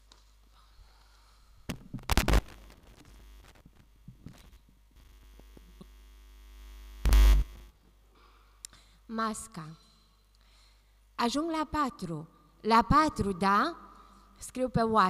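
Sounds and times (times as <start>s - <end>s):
electrical hum: 0.8s - 7.8s.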